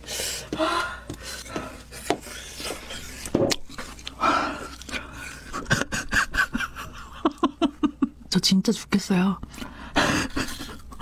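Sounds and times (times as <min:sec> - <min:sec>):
woman panting: 0:00.0 - 0:03.2, 0:04.2 - 0:05.5.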